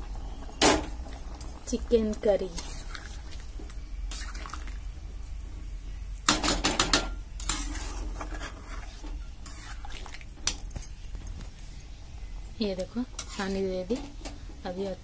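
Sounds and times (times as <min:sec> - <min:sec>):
metal spatula clinking and scraping: 0:06.5 - 0:11.0, 0:13.2 - 0:14.1.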